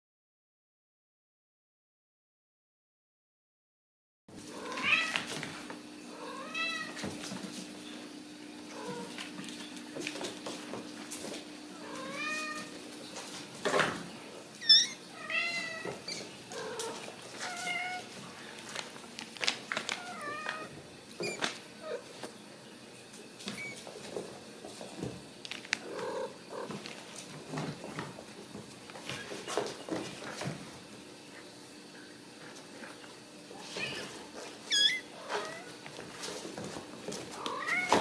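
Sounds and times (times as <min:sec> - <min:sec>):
clicks and scuffles in foil tunnel: 0:16.8 - 0:22.4.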